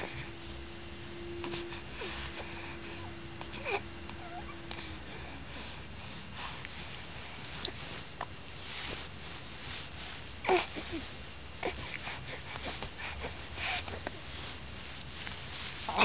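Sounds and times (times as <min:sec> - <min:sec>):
background hiss: 0:00.0 - 0:16.0
faint steady hum: 0:00.0 - 0:16.0
newborn baby squeaking and grunting: 0:03.6 - 0:04.7.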